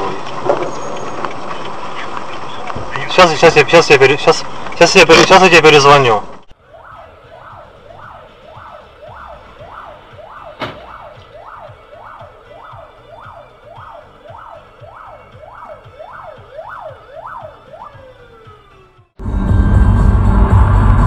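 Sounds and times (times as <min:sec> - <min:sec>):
emergency siren wailing: 0:06.5 - 0:21.0.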